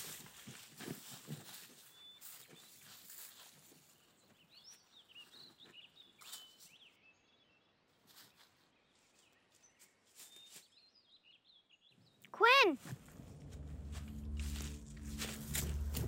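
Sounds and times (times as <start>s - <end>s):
faint outdoor ambience: 12.0s - 16.0s.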